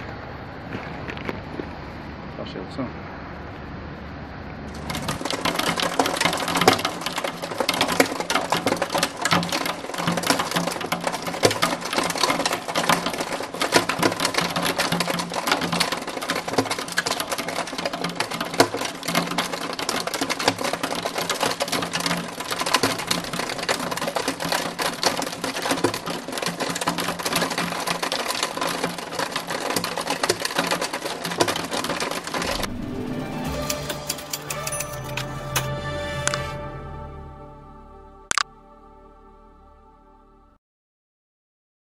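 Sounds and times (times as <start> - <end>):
hailstones clattering on hard surface: 4.7 - 32.8.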